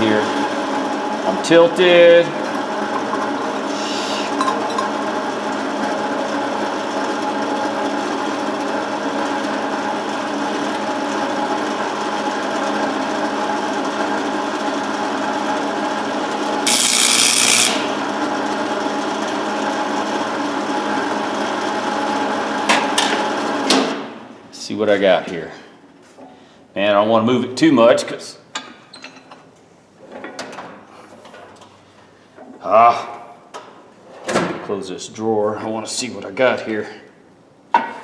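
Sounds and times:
welding arc crackling and buzzing: 16.6s - 18.3s.

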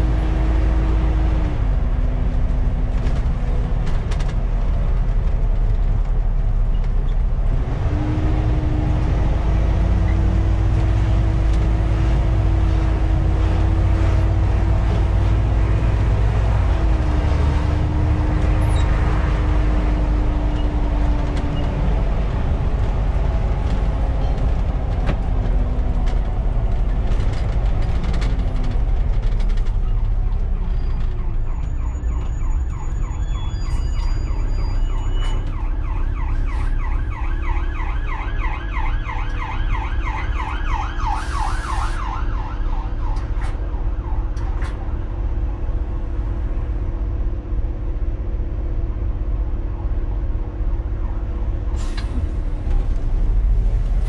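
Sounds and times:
bus diesel engine running: 0.0s - 40.3s, 41.0s - 54.0s
engine whine: 0.0s - 54.0s
siren yelping: 30.3s - 44.6s.

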